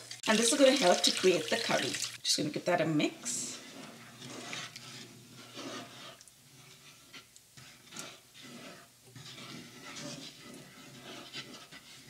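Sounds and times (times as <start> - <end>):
spatula stirring liquid in pan: 0.0 - 12.0.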